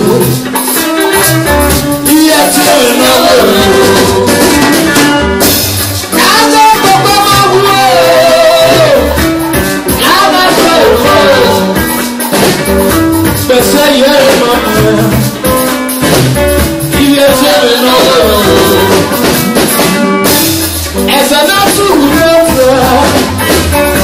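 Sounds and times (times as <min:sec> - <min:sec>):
man singing: 0:00.0 - 0:00.6, 0:01.8 - 0:05.0, 0:06.1 - 0:12.0, 0:13.3 - 0:15.6, 0:16.8 - 0:19.4, 0:21.0 - 0:24.0
drum kit: 0:00.0 - 0:24.0
electric guitars: 0:00.0 - 0:24.0.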